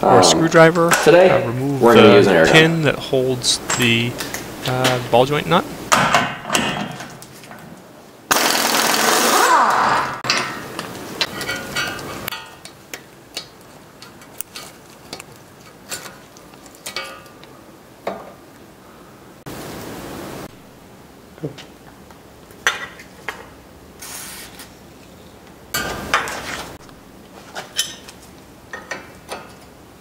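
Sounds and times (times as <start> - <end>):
pneumatic impact wrench hammering: 8.3 - 10.6.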